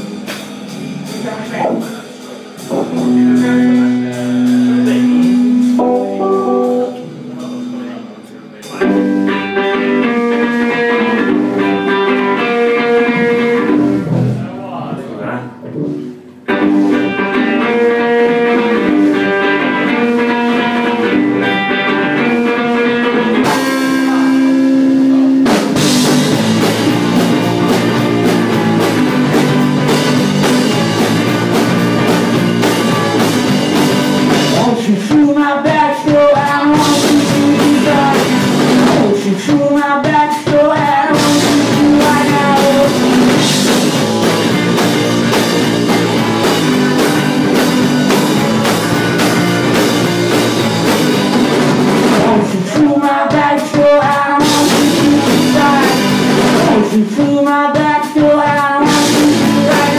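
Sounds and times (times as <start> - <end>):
guitar melody: 0.0 - 57.0
rock band playing live: 0.0 - 59.9
person singing: 2.0 - 7.8, 34.3 - 43.6, 52.0 - 59.9.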